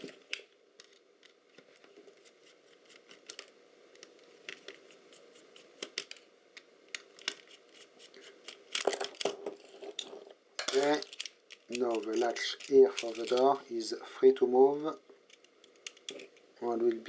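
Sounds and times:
handling clatter: 0:08.7 - 0:13.6.

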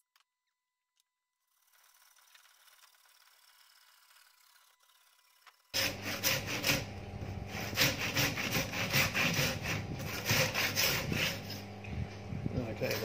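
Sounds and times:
handsaw rasping through wood: 0:05.8 - 0:11.7.

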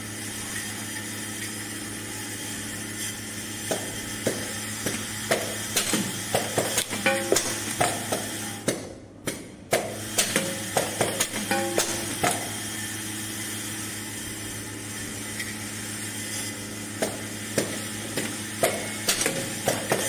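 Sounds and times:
pneumatic machine clacks: 0:03.6 - 0:12.6, 0:17.0 - 0:20.0
machine low hum: 0:10.4 - 0:20.0.

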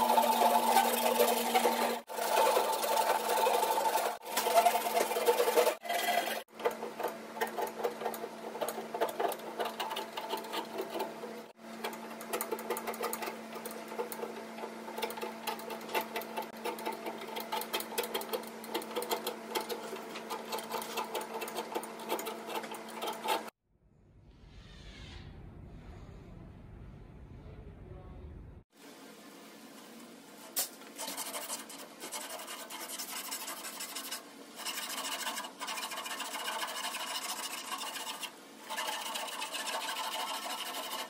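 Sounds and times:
hand file rasping on wood: 0:13.9 - 0:23.5, 0:31.0 - 0:41.0.

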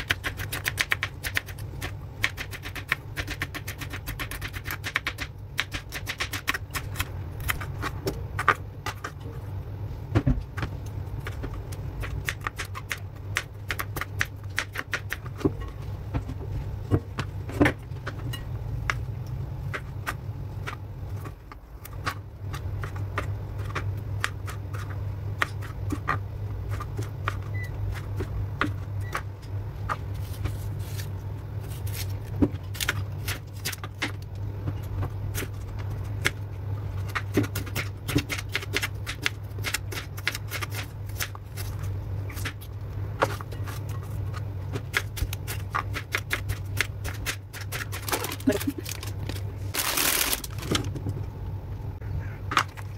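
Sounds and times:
steady low hum: 0:00.0 - 0:52.9.

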